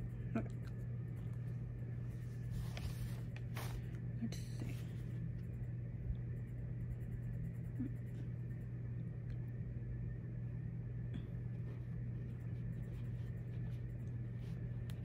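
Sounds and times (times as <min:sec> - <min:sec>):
low hum: 0:00.0 - 0:15.0
marker scratching on paper: 0:12.2 - 0:15.0.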